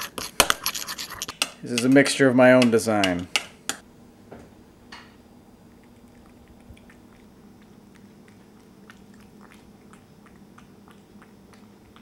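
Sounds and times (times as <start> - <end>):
faint steady hum: 2.2 - 12.0
cat lapping liquid: 5.5 - 12.0.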